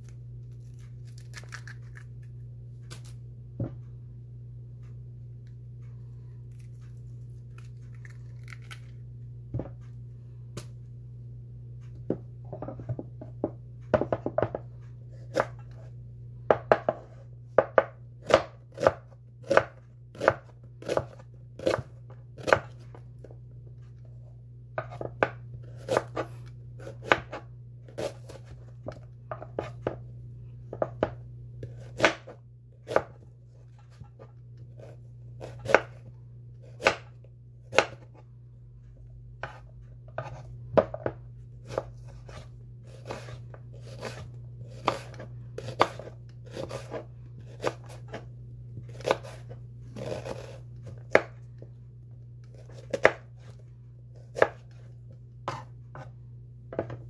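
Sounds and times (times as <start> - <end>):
steady low hum: 0.0 - 57.0
knife slicing onion on board: 12.1 - 23.0, 24.8 - 30.1, 30.7 - 38.2, 39.4 - 51.4, 52.4 - 57.0.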